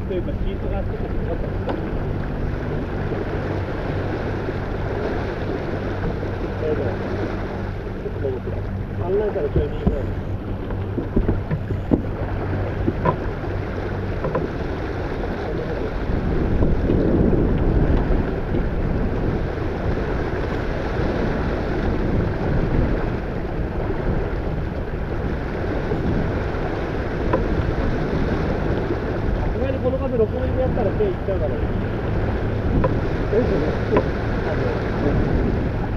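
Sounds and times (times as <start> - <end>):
water rushing along boat hull: 0.0 - 35.9
wind buffeting microphone: 0.0 - 35.9.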